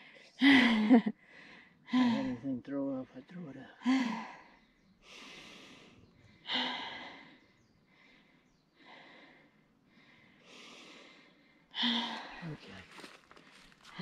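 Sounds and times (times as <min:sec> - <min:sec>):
heavy laboured breathing: 0:03.7 - 0:14.0.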